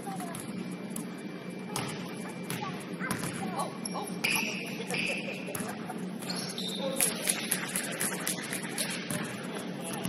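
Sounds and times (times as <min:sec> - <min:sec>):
sneakers squeaking: 0:00.0 - 0:10.0
steady low hum: 0:00.0 - 0:10.0
ball bouncing: 0:01.7 - 0:03.6, 0:04.2 - 0:10.0.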